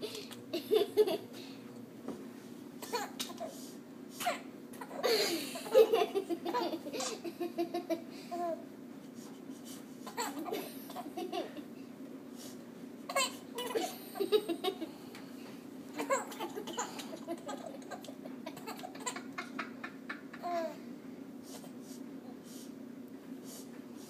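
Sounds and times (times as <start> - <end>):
steady low hum: 0.0 - 24.0
baby laughing and babbling: 7.8 - 8.6, 10.1 - 11.5, 13.1 - 14.0, 15.9 - 20.8.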